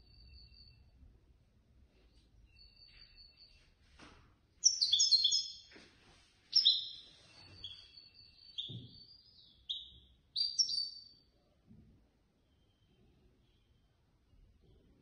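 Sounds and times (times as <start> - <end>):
finch twittering song: 4.6 - 5.8, 6.5 - 11.3.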